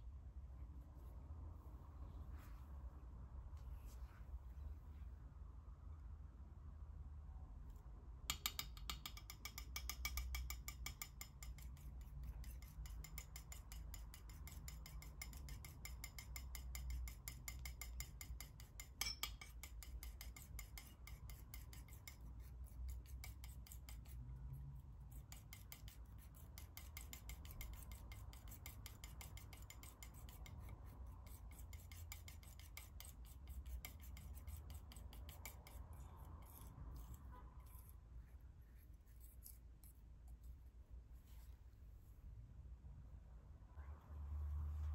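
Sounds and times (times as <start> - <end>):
palette knife scraping paint: 8.4 - 40.5.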